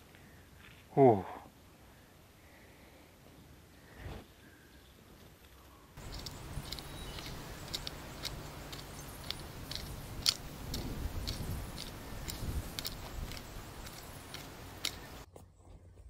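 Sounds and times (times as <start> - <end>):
hoe crunching soil: 6.0 - 15.3
low outdoor rumble: 6.0 - 16.0.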